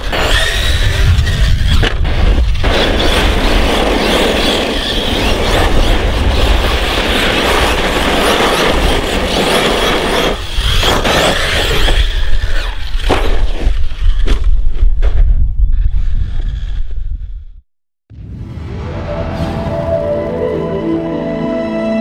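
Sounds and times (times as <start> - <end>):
tyres churning dirt: 0.0 - 14.2.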